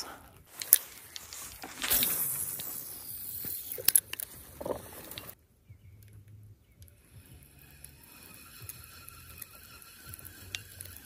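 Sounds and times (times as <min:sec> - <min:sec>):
fishing reel ratcheting whir: 0:01.8 - 0:04.3, 0:06.8 - 0:11.0
reel sharp clicks: 0:06.8 - 0:11.0.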